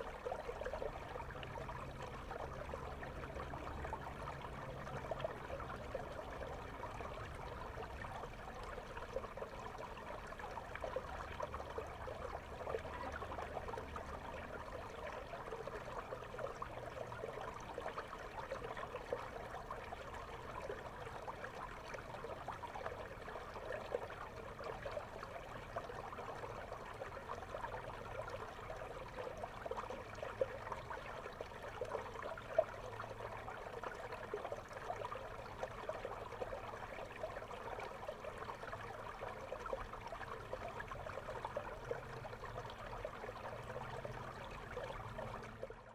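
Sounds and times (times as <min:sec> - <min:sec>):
underwater river bubbling: 0:00.0 - 0:45.9.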